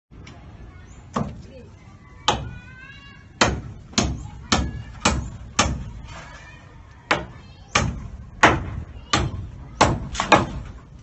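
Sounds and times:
hammer striking timber: 3.4s - 5.9s, 7.1s - 10.8s.

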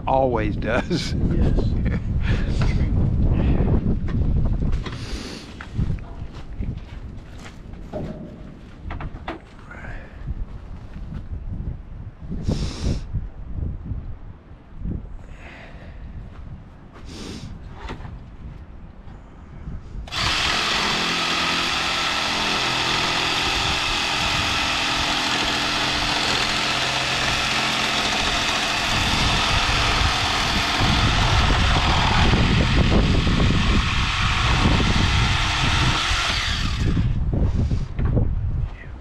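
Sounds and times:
jigsaw cutting a board: 20.1s - 37.2s.

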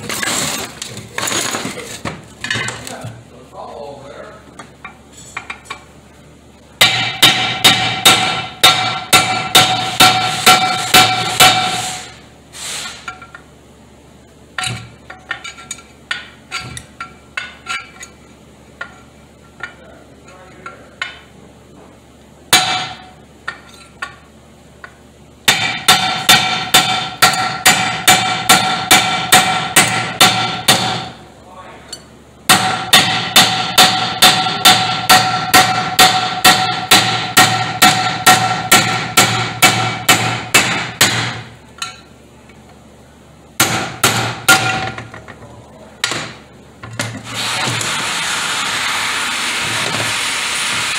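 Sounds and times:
hammer striking steel punch: 6.8s - 12.1s, 22.5s - 23.6s, 25.5s - 31.2s, 32.5s - 42.0s, 43.6s - 45.1s.

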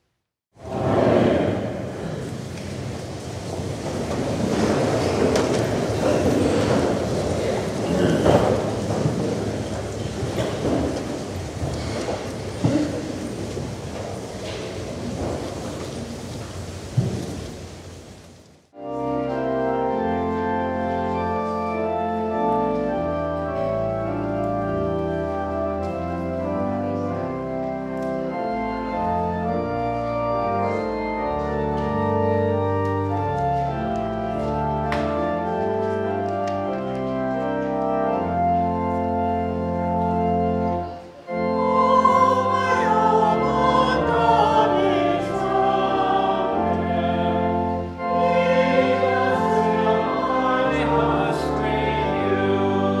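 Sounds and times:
church organ chords: 18.7s - 53.0s
voices singing: 41.3s - 53.0s.

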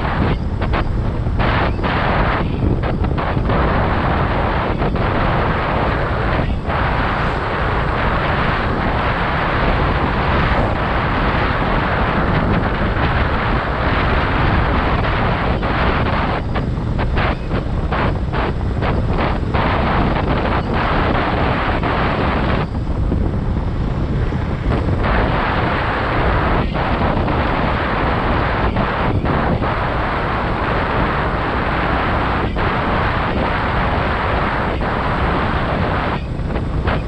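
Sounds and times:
motorcycle engine and tyre noise: 0.0s - 37.0s
wind rush on microphone: 0.0s - 37.0s.

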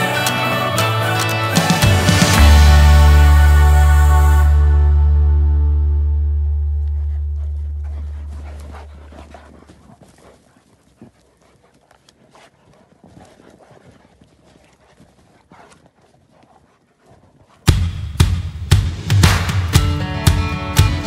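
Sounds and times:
background music: 0.0s - 8.8s, 17.7s - 21.0s
dogs panting: 6.5s - 17.8s
paws crunching in snow: 6.6s - 17.7s.

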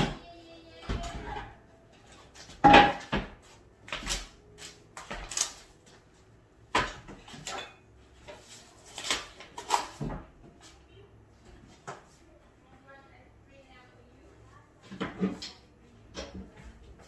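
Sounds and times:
kitchenware clattering and knocking: 2.5s - 3.4s, 6.7s - 8.4s, 14.8s - 16.6s.

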